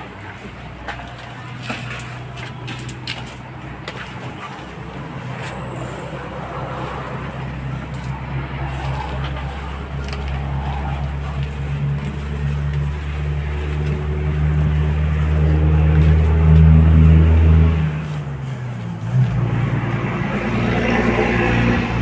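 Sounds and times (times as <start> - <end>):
vehicle engine humming: 0.0 - 22.0
rough engine note: 4.2 - 22.0.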